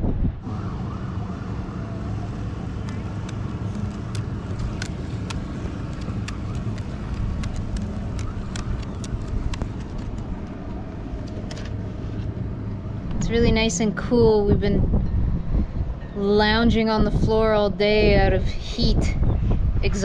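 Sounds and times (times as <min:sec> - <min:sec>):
steady low rumble: 0:00.0 - 0:20.0
light clicks and taps: 0:02.8 - 0:10.5.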